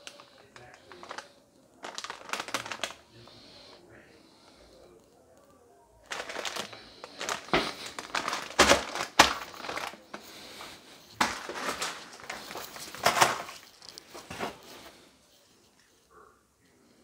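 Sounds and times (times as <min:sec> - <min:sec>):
plastic packet crinkling: 0:00.0 - 0:03.8, 0:06.0 - 0:15.0.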